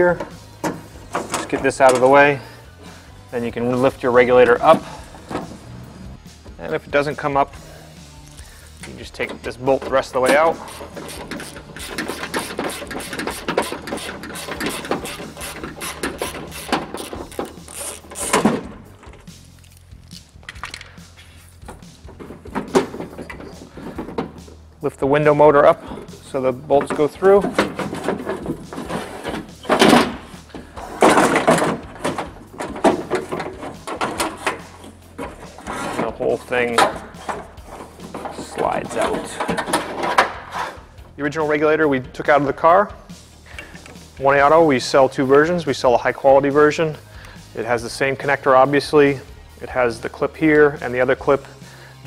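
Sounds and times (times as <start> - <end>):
metal scraping and clanking: 0.0 - 2.5, 3.4 - 7.5, 8.8 - 19.4, 20.5 - 41.2.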